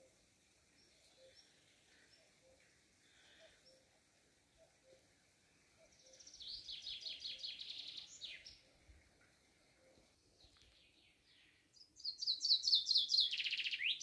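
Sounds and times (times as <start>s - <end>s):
songbird singing high notes: 12.0s - 14.0s.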